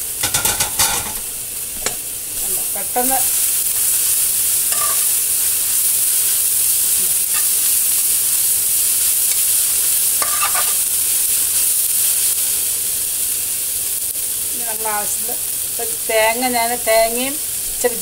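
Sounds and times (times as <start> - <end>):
greens sizzling in frying pan: 0.0 - 18.0
spatula clattering against pan: 0.2 - 1.2, 4.7 - 5.1, 10.2 - 10.8.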